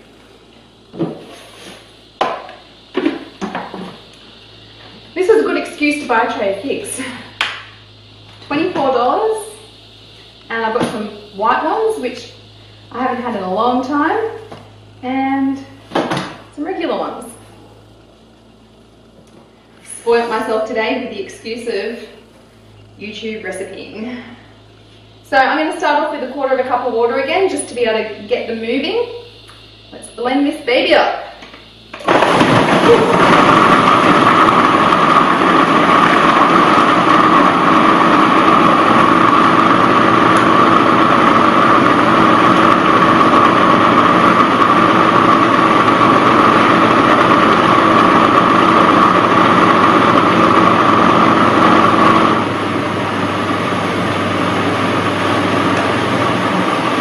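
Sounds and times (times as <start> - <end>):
food processor motor blending: 31.4 - 57.0.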